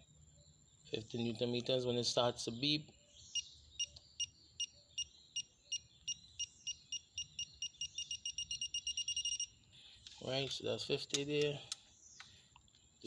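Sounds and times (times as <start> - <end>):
torque wrench two-tone beeping: 3.4 - 9.6.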